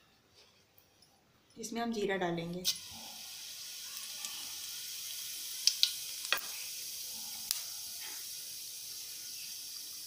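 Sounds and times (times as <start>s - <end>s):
seeds sizzling in hot oil: 2.6s - 10.0s.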